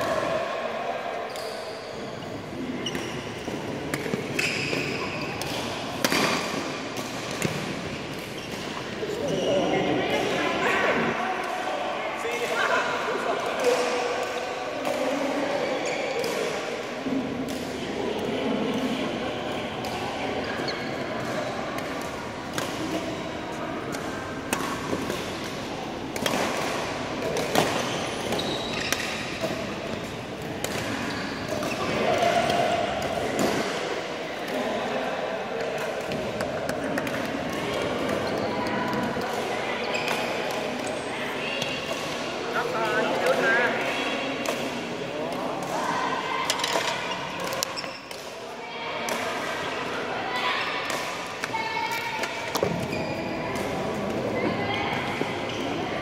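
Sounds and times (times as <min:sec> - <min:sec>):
murmur of voices: 0:00.0 - 0:56.0
shoes squeaking on court: 0:01.3 - 0:05.4, 0:08.3 - 0:09.8, 0:20.5 - 0:21.1, 0:27.5 - 0:30.2, 0:30.8 - 0:32.0, 0:52.5 - 0:53.5
racket hitting shuttlecock: 0:05.4 - 0:08.7, 0:23.9 - 0:33.9.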